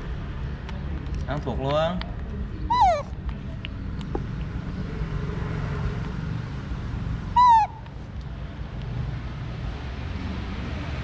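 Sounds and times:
monkey squealing: 2.6 - 3.2, 7.3 - 7.9.

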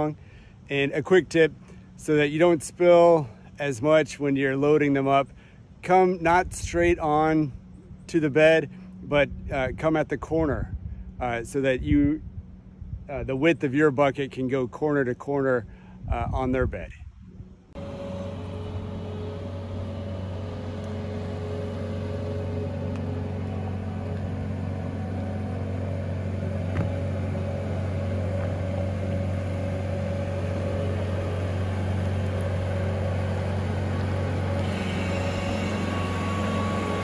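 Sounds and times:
diesel engine running: 17.2 - 37.0.

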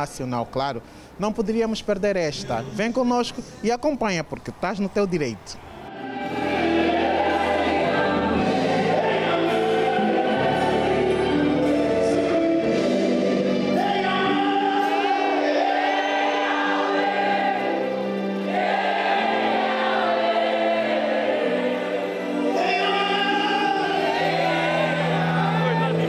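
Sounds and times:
gospel choir singing: 5.7 - 26.0.

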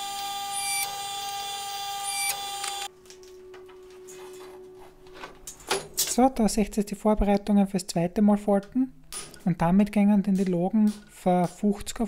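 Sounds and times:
forging press motor whine: 0.0 - 2.9.

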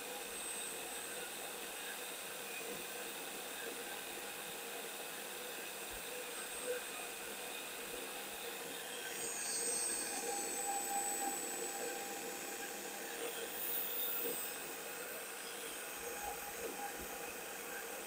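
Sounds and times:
high whistling of metal cutting: 8.9 - 18.0
boring machine whirring: 9.1 - 18.0.

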